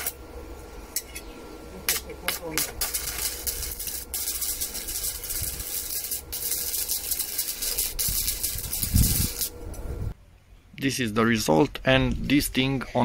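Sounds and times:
welding arc crackling and hissing: 0.0s - 0.2s, 1.0s - 10.2s.

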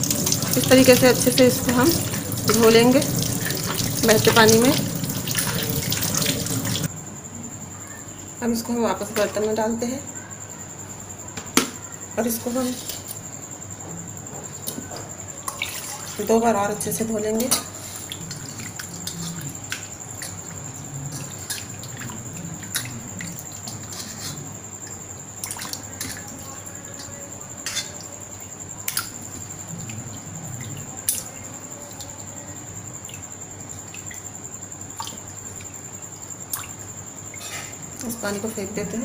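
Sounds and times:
sharp plinks and drips: 0.0s - 6.9s, 24.7s - 26.5s, 33.0s - 38.2s
water sloshing in a metal bowl: 0.0s - 6.9s, 14.5s - 39.0s.

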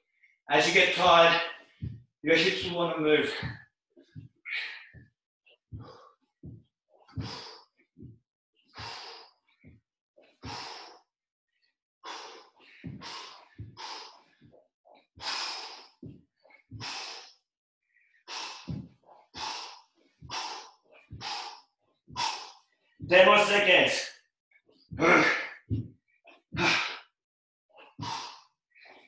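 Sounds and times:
man breathing hard: 4.5s - 5.1s, 5.7s - 7.8s, 8.7s - 9.7s, 10.3s - 11.1s, 12.1s - 14.6s, 15.2s - 17.4s, 18.2s - 22.8s, 25.0s - 25.8s, 26.6s - 27.2s, 27.8s - 29.0s.

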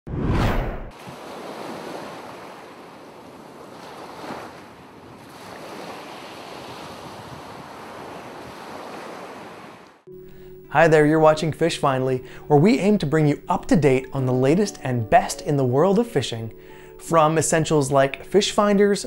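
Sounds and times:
ocean waves washing: 0.5s - 19.0s.

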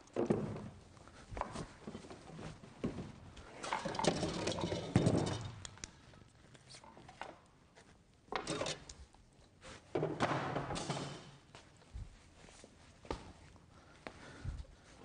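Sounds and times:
objects rustling and knocking together: 0.1s - 7.4s.

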